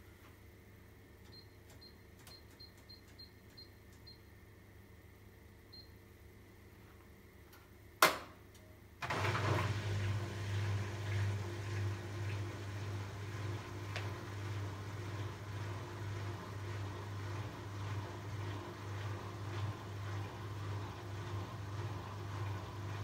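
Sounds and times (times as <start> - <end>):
washing machine running: 9.0 - 23.0.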